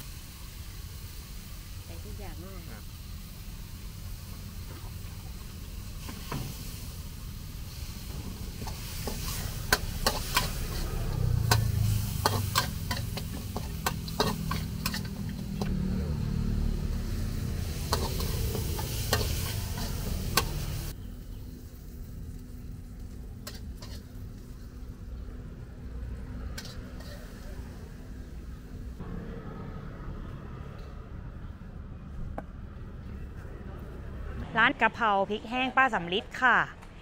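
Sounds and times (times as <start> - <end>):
meat sizzling in a pan: 0.0 - 15.7, 16.3 - 21.0
metal spatula clanking on wok: 9.1 - 15.2.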